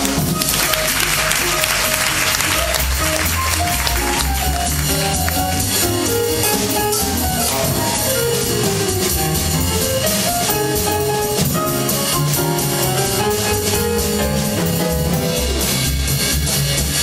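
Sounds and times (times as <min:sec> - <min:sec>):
jazz melody line: 0:00.0 - 0:17.0
upright bass: 0:00.0 - 0:17.0
cymbal beat: 0:04.5 - 0:16.9.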